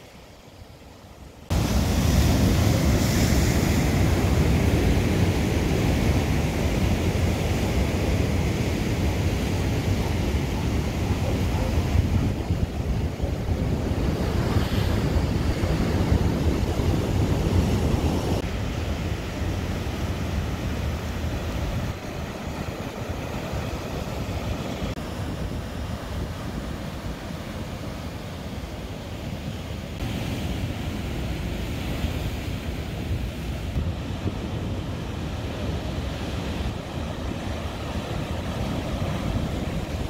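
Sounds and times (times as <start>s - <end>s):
surf crashing against rocks: 1.5s - 25.0s
wind buffeting microphone: 1.5s - 28.1s, 30.0s - 40.0s.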